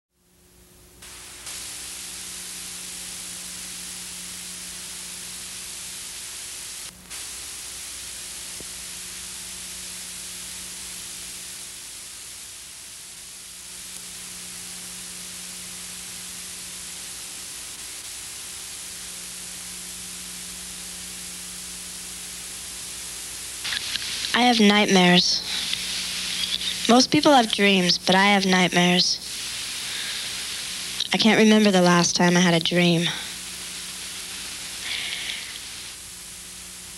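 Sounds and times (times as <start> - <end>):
film soundtrack hiss and static: 0.2 - 36.9
faint low hum: 18.6 - 36.9.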